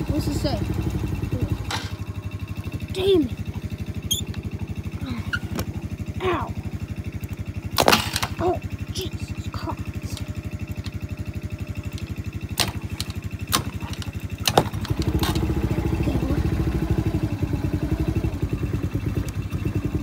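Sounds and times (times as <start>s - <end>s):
atv engine idling and revving: 0.0s - 20.0s.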